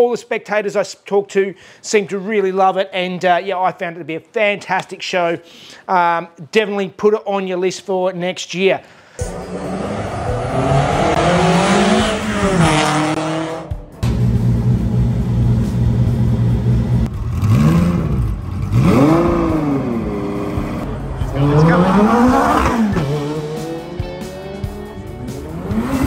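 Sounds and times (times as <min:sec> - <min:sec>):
car engine revving: 0:09.2 - 0:26.0.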